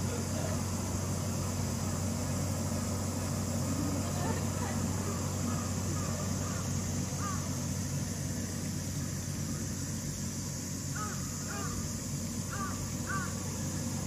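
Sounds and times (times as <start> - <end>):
steady low hum: 0.0 - 14.0
crow cawing: 5.4 - 7.5, 10.9 - 11.9, 12.5 - 13.4.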